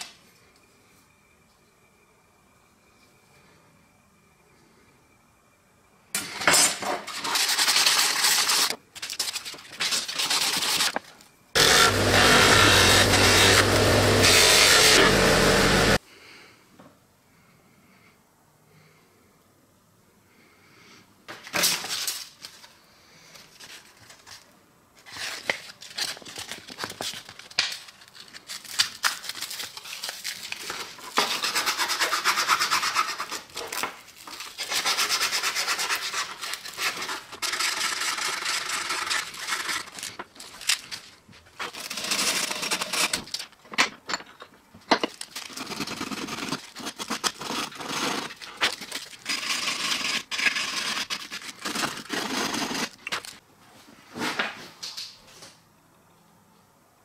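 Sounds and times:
metal parts clicking and knocking: 39.6s - 45.6s.

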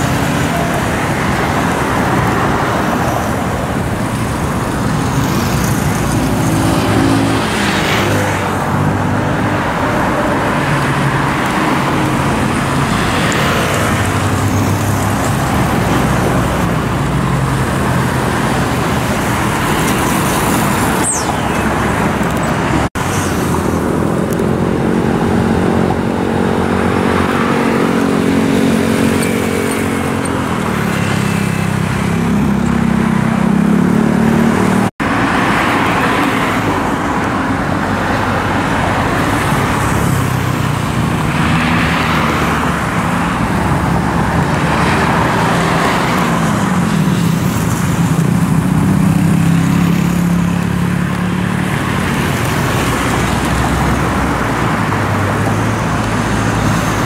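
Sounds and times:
road traffic passing: 0.0s - 57.0s.

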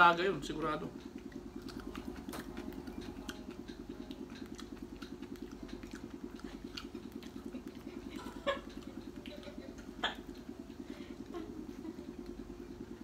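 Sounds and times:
clicks and taps of eating: 0.5s - 10.8s.

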